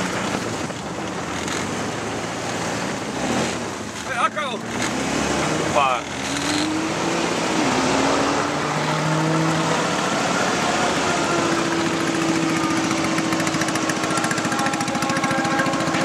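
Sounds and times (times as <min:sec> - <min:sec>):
quad bike engine idling: 0:10.6 - 0:16.0.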